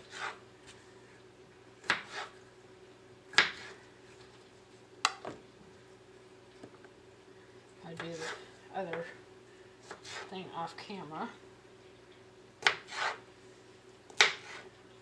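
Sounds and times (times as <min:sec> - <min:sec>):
faint steady hum: 0:00.0 - 0:15.0
knife cutting on plastic board: 0:01.8 - 0:02.4, 0:03.4 - 0:03.8, 0:12.6 - 0:13.2, 0:14.1 - 0:14.7.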